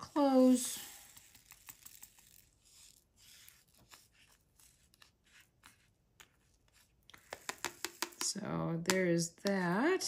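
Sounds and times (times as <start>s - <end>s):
small clicks and taps of pen: 7.1s - 9.7s.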